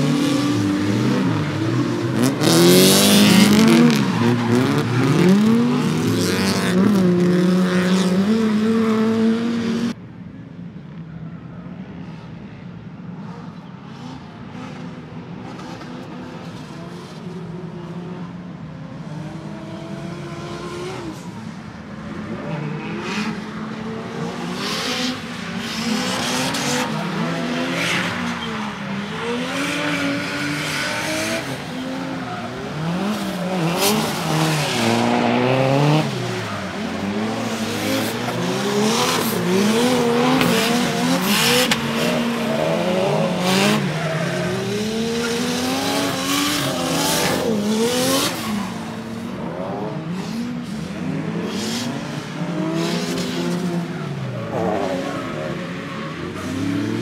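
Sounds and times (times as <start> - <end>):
car engine revving: 0.0 - 10.0, 22.2 - 57.0.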